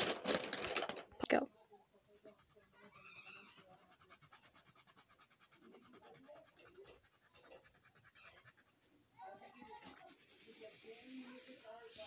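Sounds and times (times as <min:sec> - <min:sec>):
colored pencil scribbling: 0:02.0 - 0:12.0.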